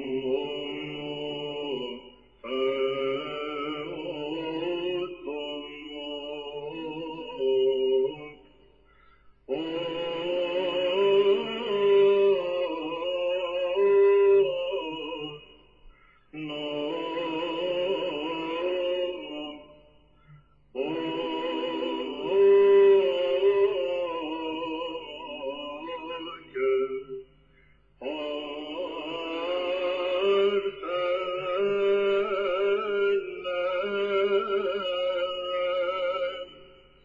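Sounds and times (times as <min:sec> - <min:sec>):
religious chant with held notes: 0:00.0 - 0:37.0.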